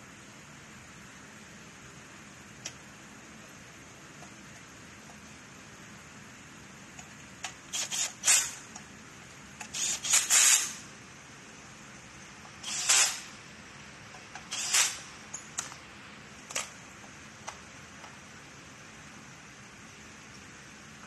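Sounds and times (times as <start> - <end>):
cordless drill bursts: 7.7 - 8.6, 9.6 - 10.8, 12.6 - 13.4, 14.5 - 15.1.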